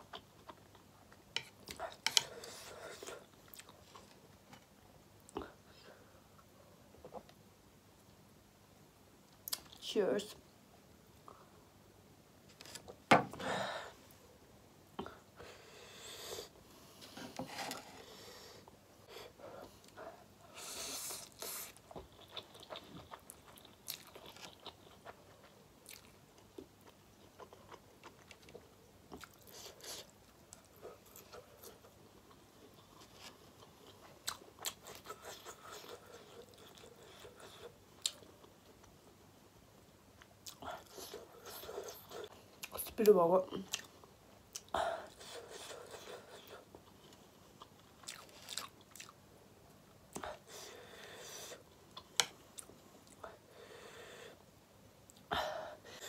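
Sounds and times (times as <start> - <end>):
person chewing and biting food: 47.6 - 49.2.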